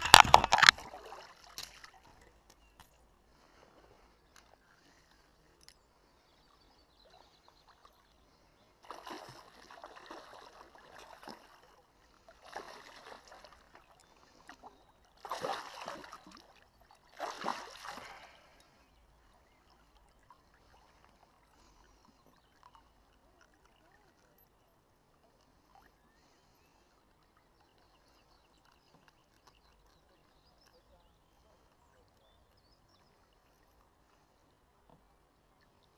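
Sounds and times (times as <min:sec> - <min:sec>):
fish thrashing and water splashing: 0:00.0 - 0:02.2, 0:08.8 - 0:11.7, 0:15.2 - 0:18.6.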